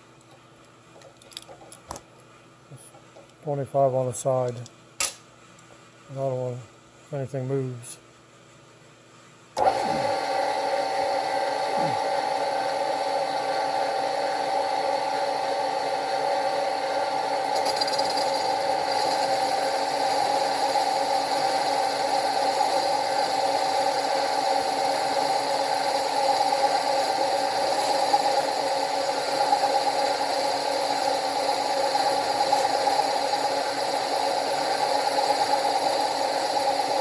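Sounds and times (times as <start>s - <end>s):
high-pitched machine whine: 9.6s - 37.0s
milling machine running: 9.6s - 37.0s.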